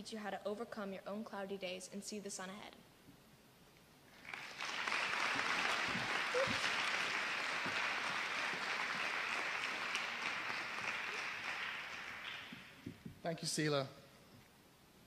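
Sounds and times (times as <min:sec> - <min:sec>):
audience applauding: 0:04.1 - 0:13.0.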